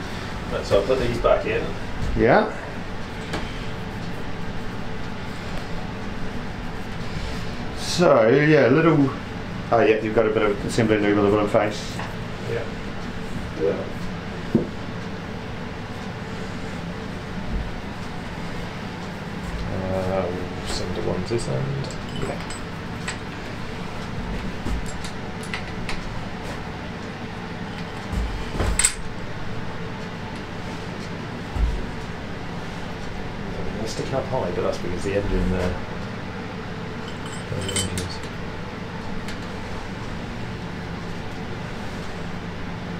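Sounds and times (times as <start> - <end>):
faint hum: 0.0 - 42.9
knock with dull thump: 14.5 - 14.8.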